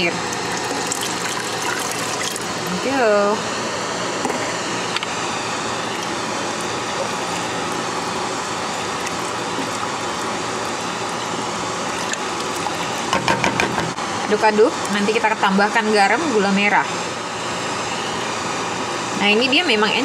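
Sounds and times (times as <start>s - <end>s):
stovetop rushing noise: 0.0s - 15.1s
wooden spoon stirring a pot: 5.9s - 13.2s.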